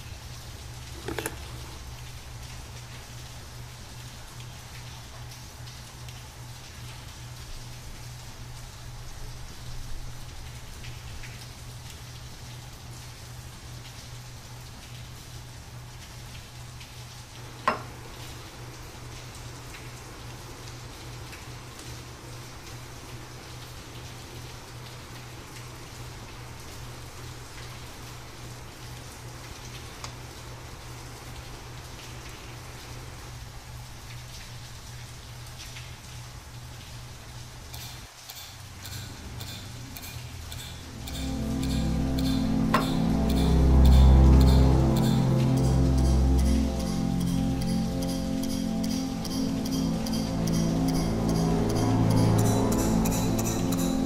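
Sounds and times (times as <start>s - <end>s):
rain-like hiss: 0.0s - 54.0s
low pulsing hum: 38.9s - 54.0s.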